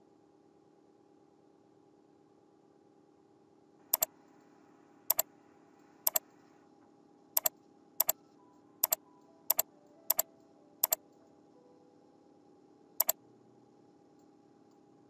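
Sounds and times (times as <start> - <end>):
faint steady hum: 0.0 - 15.0
mouse button clicking: 7.4 - 8.2, 8.8 - 11.0.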